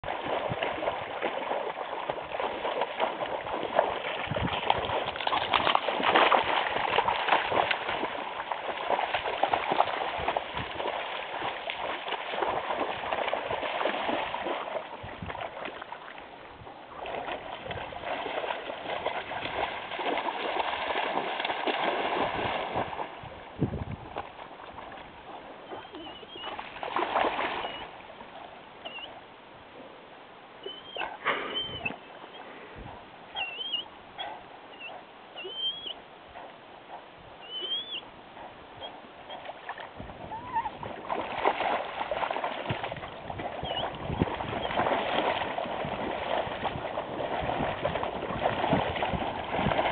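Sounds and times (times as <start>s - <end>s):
dog splashing through water: 0.0s - 28.3s, 38.8s - 49.9s
high squeaky calls: 25.7s - 26.6s, 30.6s - 32.0s, 33.4s - 33.9s, 34.8s - 36.0s, 37.4s - 38.0s.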